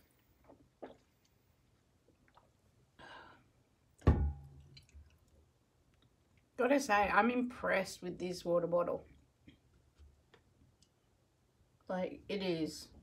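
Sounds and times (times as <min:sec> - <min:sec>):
water bottle thud: 0:04.0 - 0:04.6.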